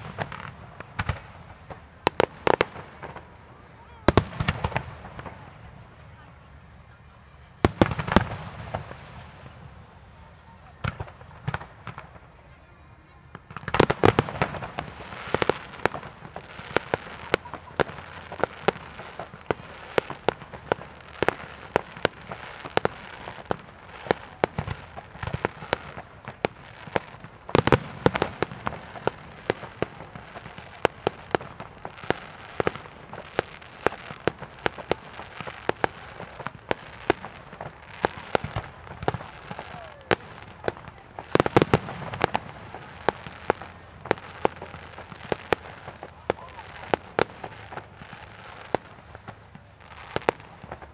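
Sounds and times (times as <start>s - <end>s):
fireworks bangs and pops: 0.0s - 6.1s, 7.6s - 50.9s.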